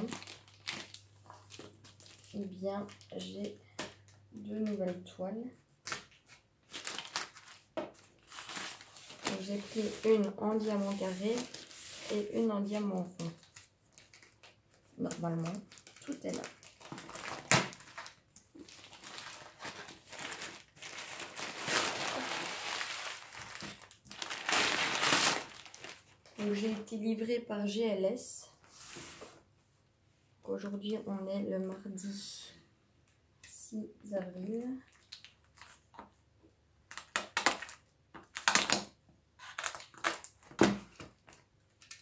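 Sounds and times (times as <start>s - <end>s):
plastic wrapping crinkling: 0.0s - 4.8s, 5.8s - 26.9s, 34.9s - 36.1s, 36.9s - 42.0s.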